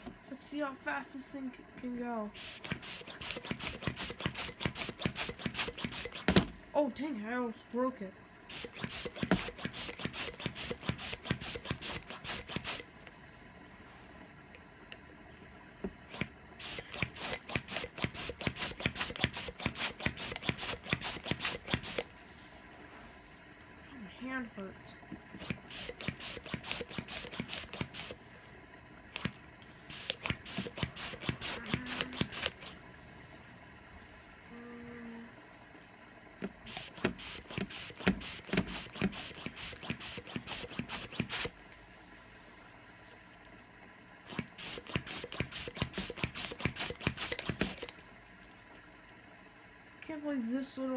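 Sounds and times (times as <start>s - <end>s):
balloon pump puffing air: 2.4s - 6.6s, 8.5s - 13.0s, 15.8s - 22.7s, 25.3s - 28.2s, 29.1s - 32.9s, 36.4s - 42.1s, 44.2s - 48.0s.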